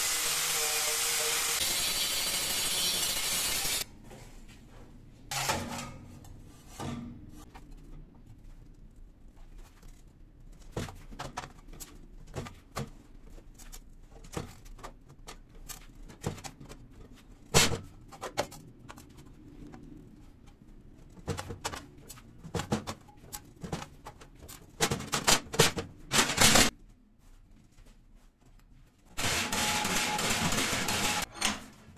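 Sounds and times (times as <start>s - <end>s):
metal shear cutting sheet steel: 0.0s - 3.8s, 29.2s - 31.6s.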